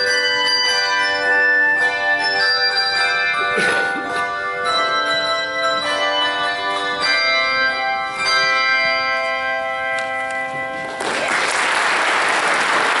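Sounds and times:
handbell choir ringing: 0.0 - 11.1
audience applause: 11.0 - 13.0.

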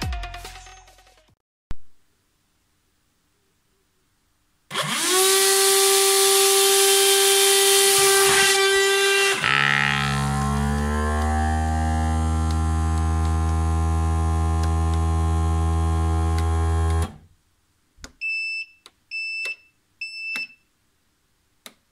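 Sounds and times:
vacuum motor humming: 4.7 - 17.2
short electronic beeps: 18.2 - 20.6.

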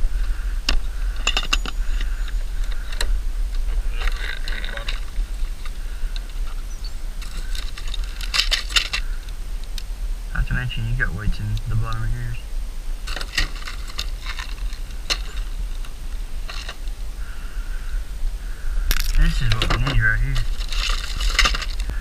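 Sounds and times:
hands rummaging through compartments: 7.2 - 9.1, 13.1 - 16.9, 18.9 - 22.0.

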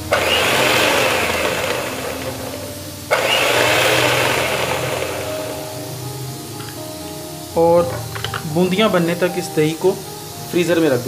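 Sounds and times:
electric hand mixer whirring: 0.0 - 7.6.

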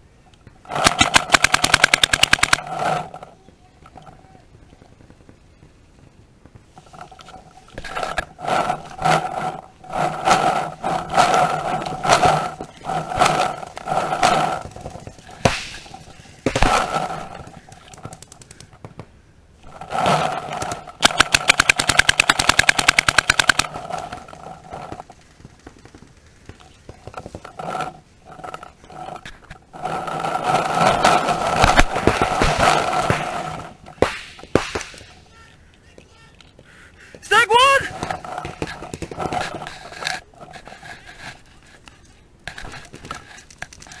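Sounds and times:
paintball markers firing: 0.7 - 3.1, 10.4 - 19.2, 20.0 - 24.3, 30.4 - 35.3.

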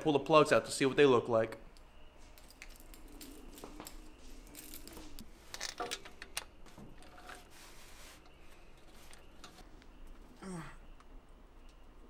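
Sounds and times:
small metal parts clicking: 1.8 - 7.5
light rustling of hands: 2.1 - 10.0.

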